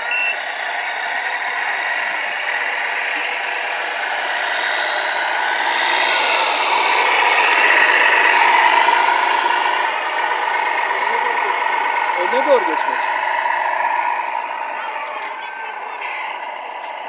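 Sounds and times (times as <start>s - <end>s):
electric motor whine: 0.6s - 17.0s.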